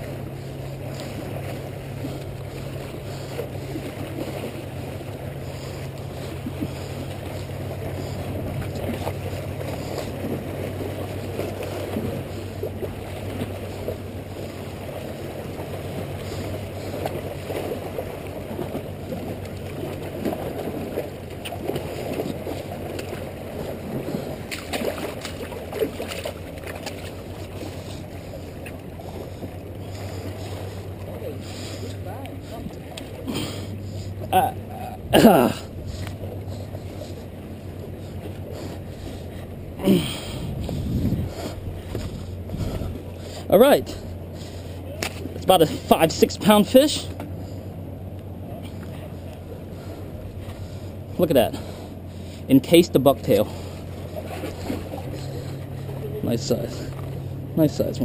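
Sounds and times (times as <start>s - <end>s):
sea water splashing on rocks: 17.0s - 27.7s
wind on microphone: 40.3s - 43.1s.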